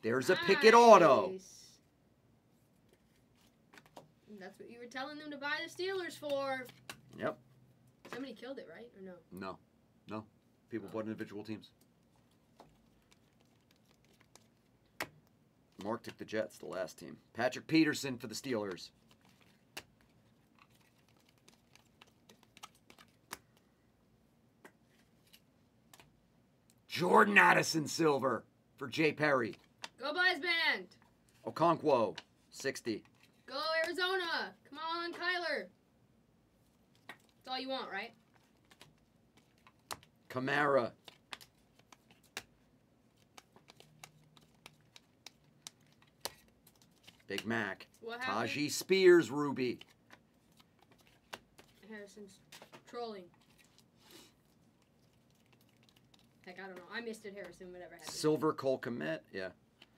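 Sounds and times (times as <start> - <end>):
trading cards clicking and tapping: 18.6 - 23.7, 38.4 - 42.6, 43.2 - 47.8, 55.4 - 58.4.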